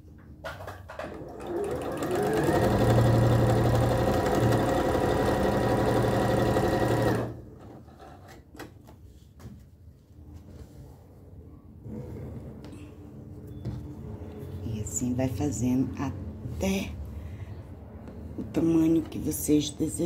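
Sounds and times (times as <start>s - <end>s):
sewing machine stitching: 1.0s - 7.4s.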